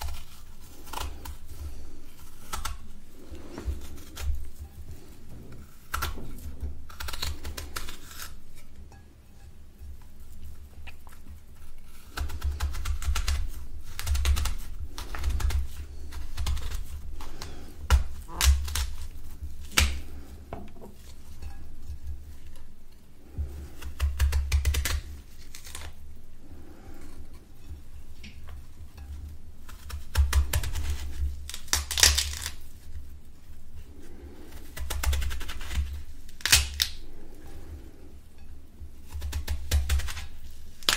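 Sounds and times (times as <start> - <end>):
knife slicing crisp fruit: 0.0 - 8.9, 10.2 - 33.0
soft handling thumps: 19.4 - 23.6.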